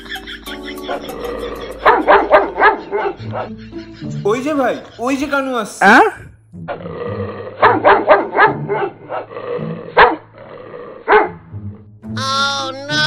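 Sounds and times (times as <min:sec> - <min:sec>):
dogs barking: 0:00.0 - 0:04.2, 0:07.5 - 0:11.5.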